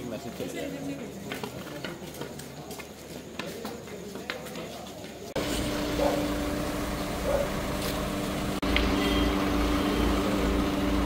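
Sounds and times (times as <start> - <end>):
vehicle engine idling: 5.4 - 11.0.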